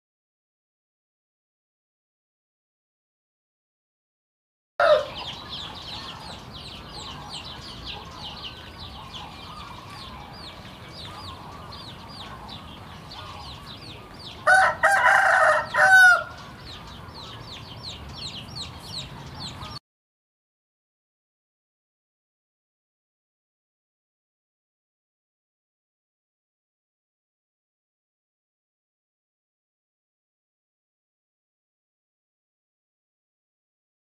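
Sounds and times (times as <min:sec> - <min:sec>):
rooster crowing: 0:04.8 - 0:05.3, 0:14.4 - 0:16.4.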